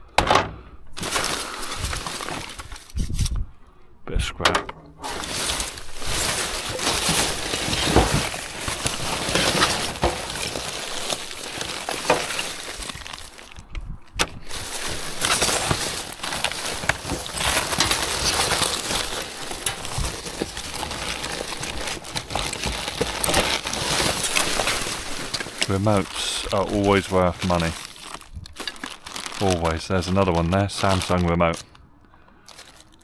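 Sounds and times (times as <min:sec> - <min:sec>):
plastic packaging crinkling: 0:01.0 - 0:03.3, 0:05.0 - 0:31.8, 0:32.4 - 0:33.0
small knocks in bin: 0:04.4 - 0:13.4.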